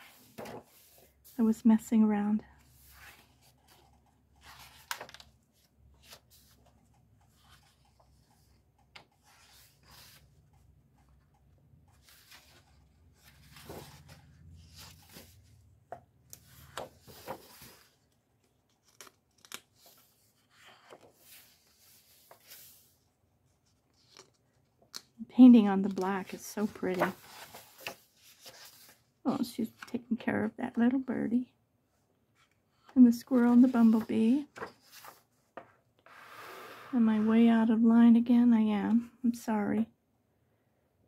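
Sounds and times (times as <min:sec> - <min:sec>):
paper pages flipping: 0:00.0 - 0:01.0, 0:02.9 - 0:08.3, 0:16.3 - 0:17.9, 0:18.7 - 0:22.8, 0:23.7 - 0:25.1, 0:25.8 - 0:29.0, 0:33.4 - 0:35.6.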